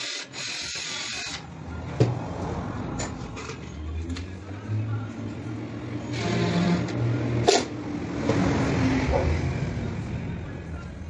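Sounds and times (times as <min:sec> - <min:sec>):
cordless drill driving screws: 0:00.0 - 0:01.4.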